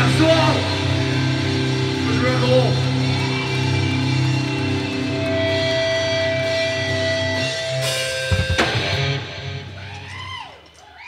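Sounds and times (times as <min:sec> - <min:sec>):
rock band playing live: 0:00.0 - 0:10.4
drum and cymbal hit: 0:07.6 - 0:09.2.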